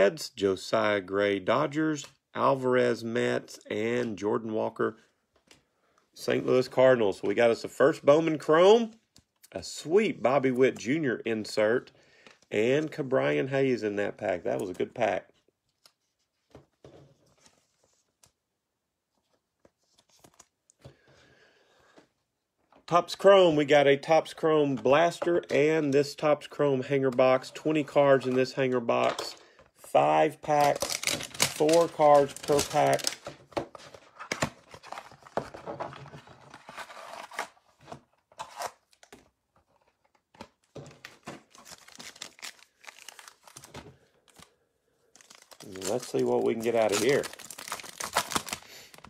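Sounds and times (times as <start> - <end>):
trading cards and packaging rustling: 19.0 - 21.0, 22.8 - 49.0.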